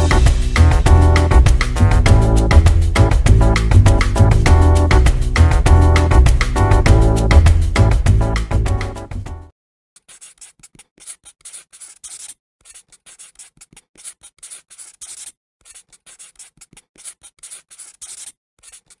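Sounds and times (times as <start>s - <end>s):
pen scratching on paper: 10.0s - 19.0s.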